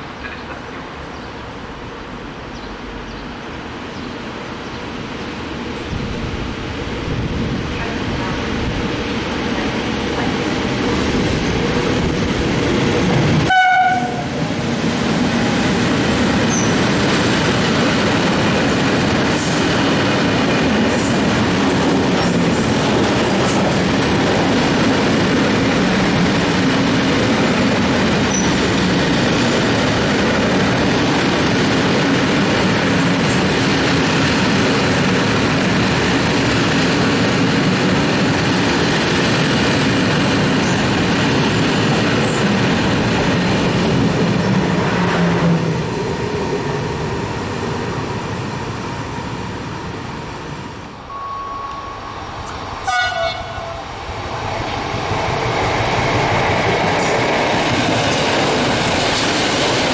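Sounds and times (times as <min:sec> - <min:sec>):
train horn: 0:13.4 - 0:14.4, 0:52.8 - 0:54.0.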